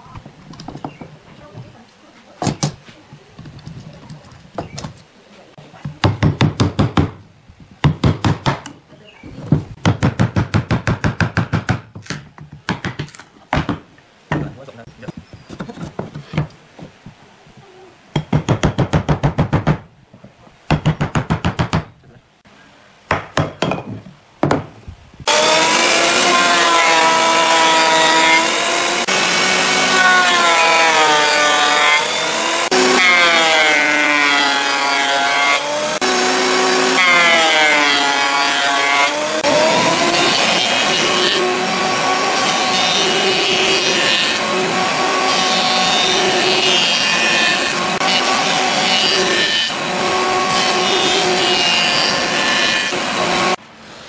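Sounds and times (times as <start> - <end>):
thickness planer running: 25.3 - 33.1.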